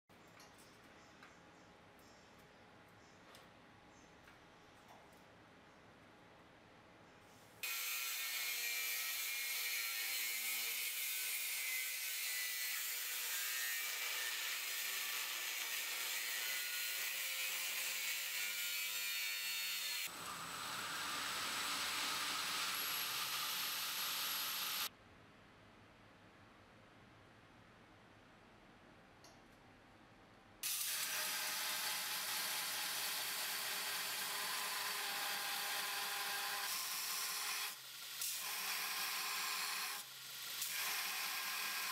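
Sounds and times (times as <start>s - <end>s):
angle grinder cutting steel: 7.6s - 24.9s, 30.6s - 41.9s.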